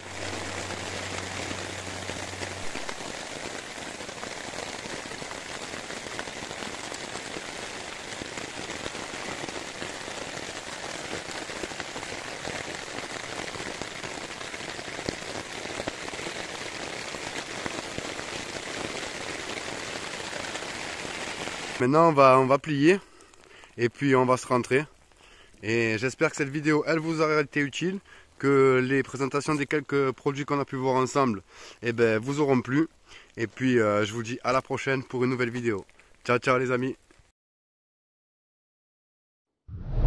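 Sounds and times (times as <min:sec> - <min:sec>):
rain pattering on a tarp: 0:00.0 - 0:37.3.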